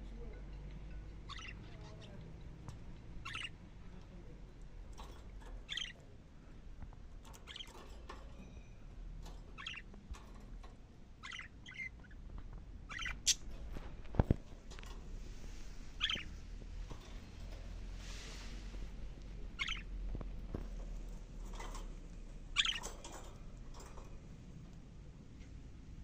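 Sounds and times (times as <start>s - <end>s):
budgerigars chirping: 1.2s - 2.2s, 3.2s - 3.6s, 5.6s - 6.0s, 7.3s - 7.9s, 9.4s - 9.9s, 11.2s - 12.2s, 12.9s - 13.5s, 15.9s - 16.5s, 19.4s - 20.0s, 22.4s - 23.3s.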